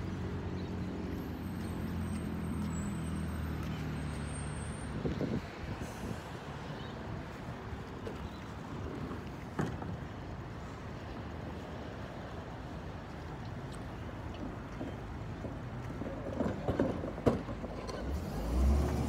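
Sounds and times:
garbage truck diesel engine: 16.0 - 19.0.

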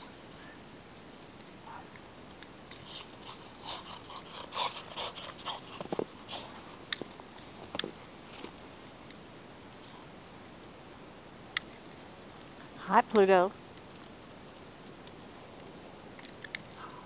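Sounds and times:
footsteps crunching in snow: 5.6 - 9.1.

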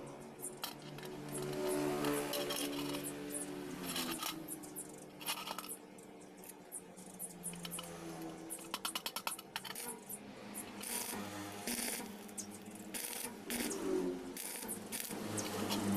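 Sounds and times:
metal chain and pliers clinking: 0.4 - 5.8.

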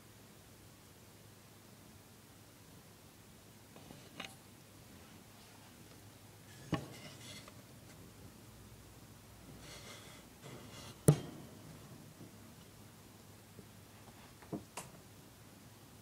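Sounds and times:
sharp knock: 11.0 - 11.5.

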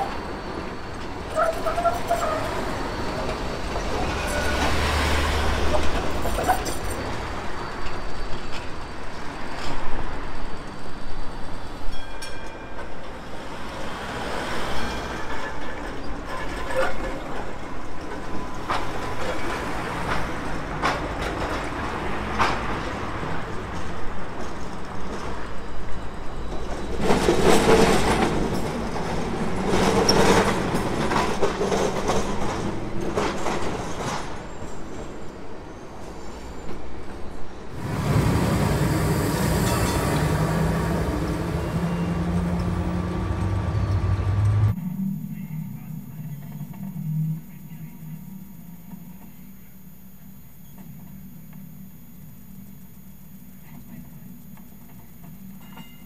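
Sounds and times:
tram wheels clattering over track joints: 0.0 - 44.8
street traffic: 0.0 - 49.2.

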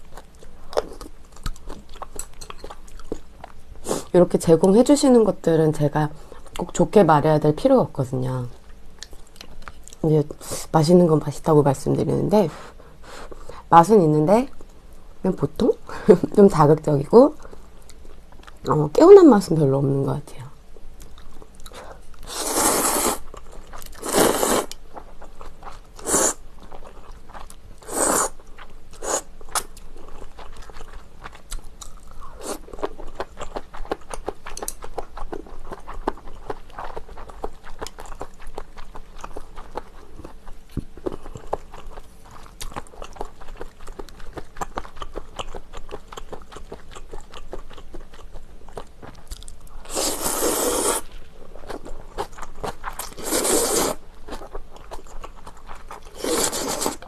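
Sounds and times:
wet chewing with crunchy bites: 0.0 - 4.1, 8.5 - 10.1, 17.4 - 18.8, 20.6 - 57.0
slurping noodles: 22.3 - 23.2, 24.0 - 24.8, 26.0 - 26.4, 27.8 - 28.3, 49.9 - 51.1, 53.2 - 54.0, 56.1 - 57.0.

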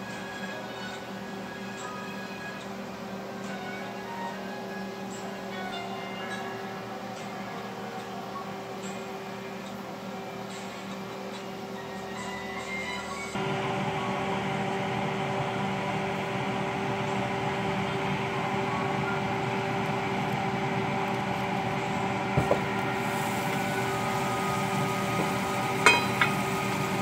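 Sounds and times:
kitchen fan motor humming: 13.4 - 27.0.

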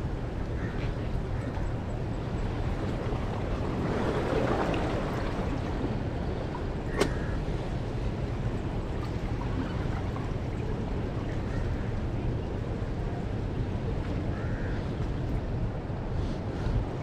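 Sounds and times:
sea water washing against rocks: 2.9 - 7.4.

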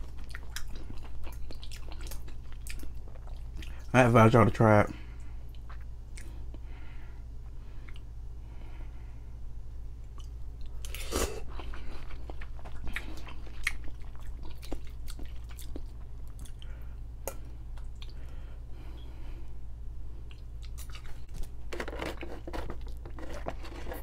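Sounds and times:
person chewing noodles: 0.0 - 3.9, 5.5 - 6.6, 10.1 - 18.5, 20.2 - 21.6.

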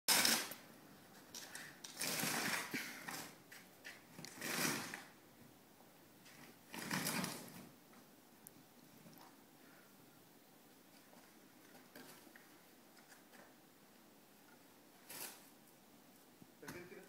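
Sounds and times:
snow shovel scraping pavement: 1.9 - 3.4, 4.3 - 5.2.

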